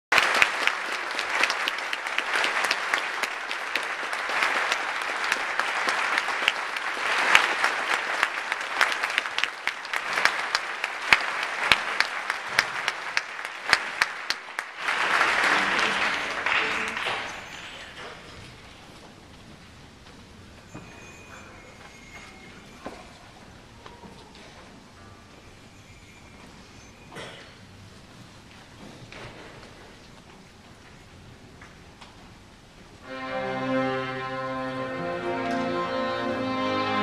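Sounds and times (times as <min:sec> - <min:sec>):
audience applauding: 0:00.0 - 0:18.4.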